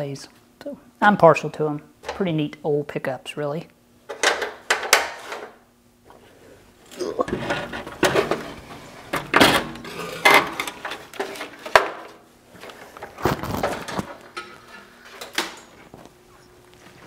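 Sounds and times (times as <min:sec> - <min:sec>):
metal parts clanking and rattling: 0:07.2 - 0:12.0.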